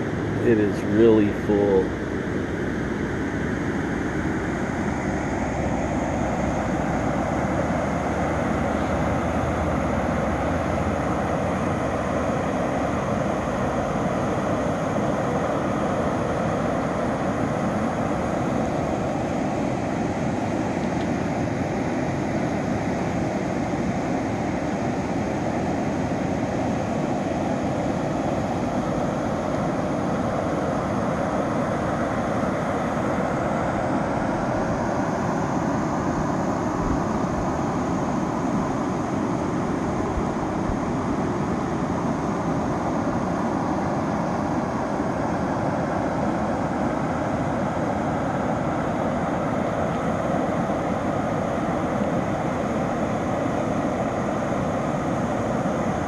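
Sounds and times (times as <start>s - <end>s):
creek rushing water: 5.0s - 17.1s.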